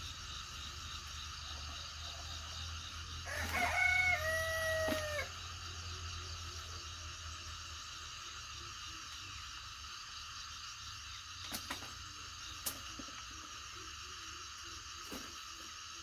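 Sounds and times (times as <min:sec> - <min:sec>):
rooster crowing: 0:01.6 - 0:05.4.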